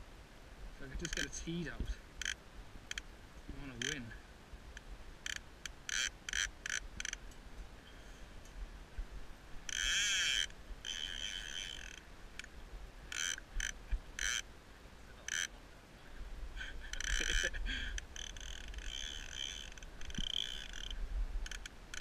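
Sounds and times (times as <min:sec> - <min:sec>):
fishing reel buzzing: 0:02.2 - 0:03.0, 0:05.2 - 0:07.2, 0:09.7 - 0:12.0, 0:13.1 - 0:14.5, 0:15.3 - 0:15.5, 0:16.8 - 0:22.0
fishing reel clicking: 0:02.2 - 0:03.0, 0:05.2 - 0:07.2, 0:09.7 - 0:12.0, 0:13.1 - 0:14.4, 0:15.3 - 0:15.5, 0:16.8 - 0:22.0.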